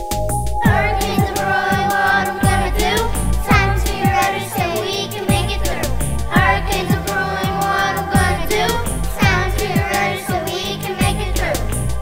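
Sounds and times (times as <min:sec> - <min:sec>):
hi-hat: 0:00.0 - 0:12.0
kick drum: 0:00.6 - 0:02.6, 0:03.4 - 0:04.2, 0:06.2 - 0:07.6
children singing: 0:00.6 - 0:12.0.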